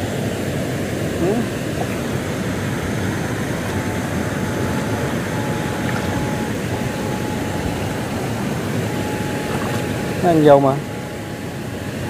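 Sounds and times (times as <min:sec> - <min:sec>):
electrofishing rig droning buzz: 0:00.0 - 0:12.0
thin high whine: 0:00.0 - 0:12.0.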